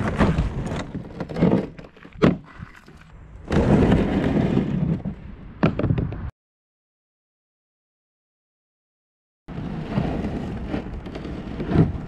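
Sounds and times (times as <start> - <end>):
kayak scraping: 0.0 - 5.0, 9.6 - 12.0.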